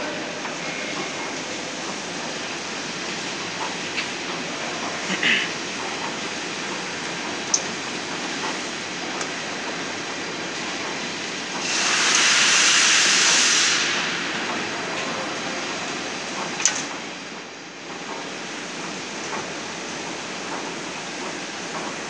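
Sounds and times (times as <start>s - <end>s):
loud hiss: 11.6s - 14.9s.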